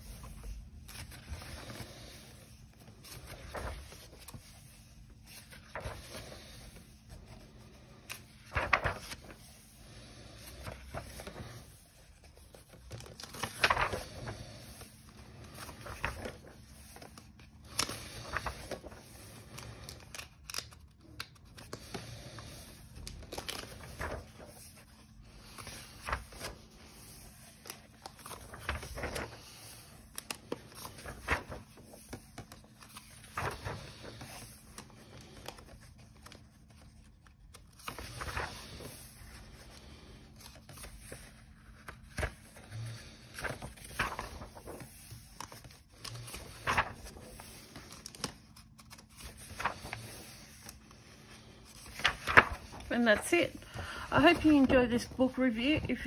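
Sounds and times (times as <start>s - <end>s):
pages turning: 0.0s - 56.0s
hand brushing over paper: 46.4s - 47.8s, 49.4s - 53.2s.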